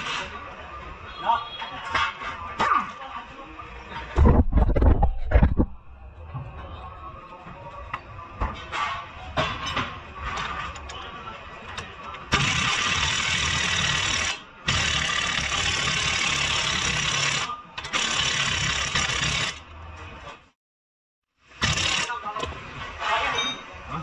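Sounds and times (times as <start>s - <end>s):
pneumatic impact wrench hammering: 12.3s - 19.6s, 21.5s - 22.1s.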